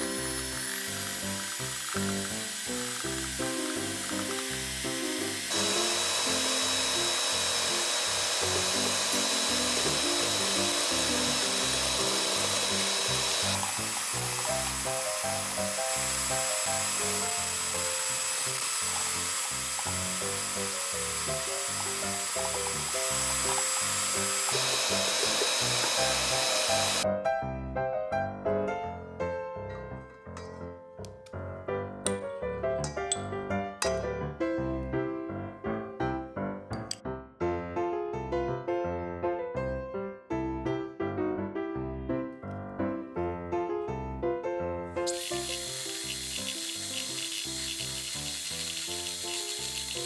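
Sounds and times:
background music: 0.0s - 18.6s
electric hand mixer whisking: 0.0s - 27.0s, 45.1s - 50.0s.

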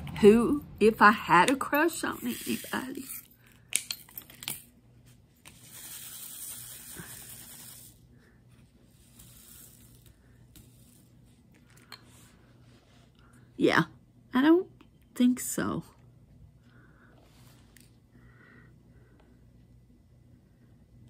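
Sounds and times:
faint handling sounds: 7.6s - 13.5s.

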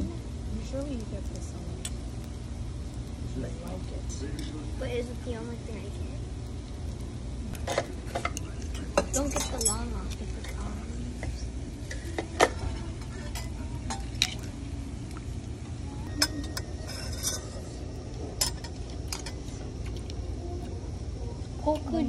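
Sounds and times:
low background hum: 0.0s - 22.0s
metal utensils clinking on a bowl: 7.6s - 14.5s, 16.1s - 20.0s.

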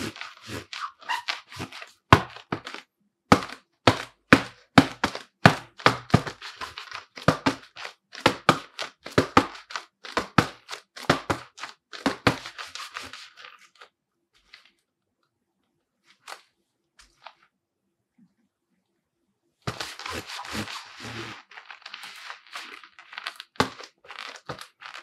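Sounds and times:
gloves slapping a football: 0.0s - 13.2s, 19.7s - 21.4s, 23.6s - 25.0s.

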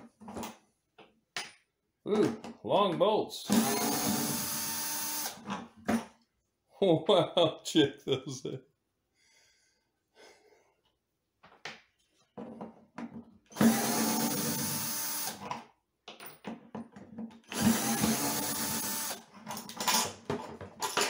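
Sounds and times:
power drill running: 3.5s - 5.5s, 13.5s - 15.4s, 17.5s - 19.3s.

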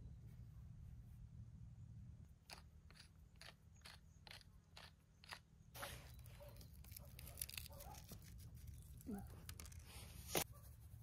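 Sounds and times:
pepper mill grinding: 2.5s - 5.5s.

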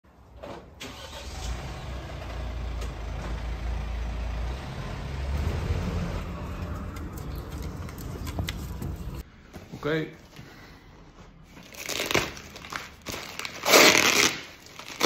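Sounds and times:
van engine rumbling: 0.3s - 9.2s
street noise: 1.2s - 10.0s.

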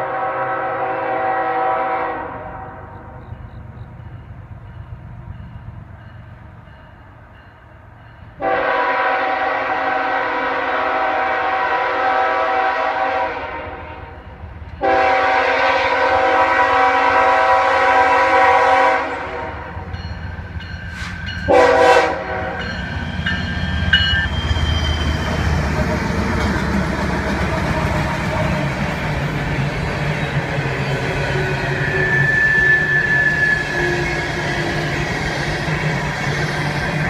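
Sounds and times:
locomotive horn blasts: 0.0s - 3.2s, 8.4s - 14.2s, 14.8s - 19.9s, 21.0s - 22.8s
train rumble: 0.0s - 37.0s.

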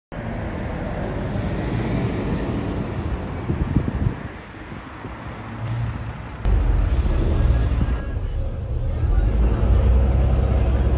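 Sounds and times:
bus driving past: 0.2s - 10.9s
wind buffeting microphone: 3.2s - 5.1s.

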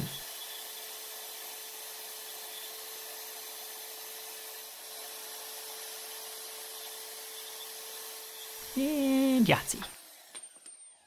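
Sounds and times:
band saw cutting steel: 0.0s - 10.6s.

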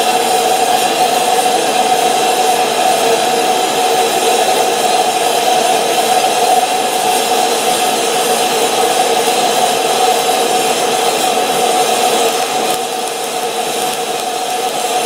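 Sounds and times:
gas torch flame rushing: 6.2s - 15.0s.

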